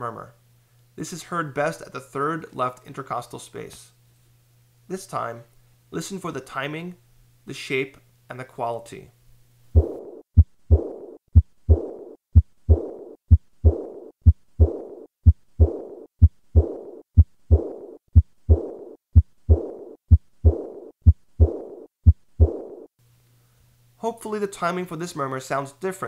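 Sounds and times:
heartbeat thuds: 0:09.7 - 0:22.9
blowing heart murmur: 0:09.8 - 0:22.9.

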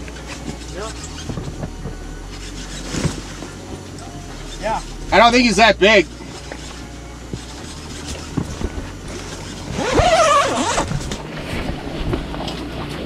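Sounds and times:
fishing reel cranking: 0:00.1 - 0:01.6, 0:02.2 - 0:11.2.

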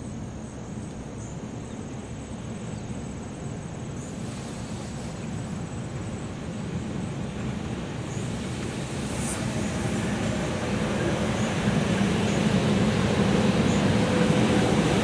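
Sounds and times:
train wheels rumbling on rail: 0:03.9 - 0:15.0.

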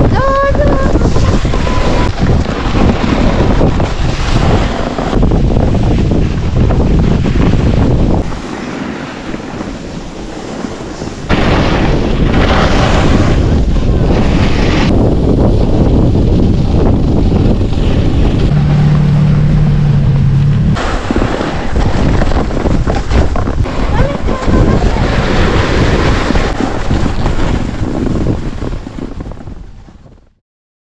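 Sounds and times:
wind buffeting microphone: 0:00.0 - 0:30.4
skis sliding on snow: 0:00.6 - 0:18.6, 0:20.8 - 0:30.2.

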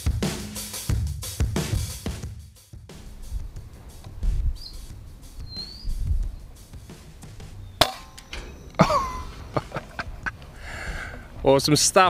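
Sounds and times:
music with drum beat: 0:00.0 - 0:10.0.

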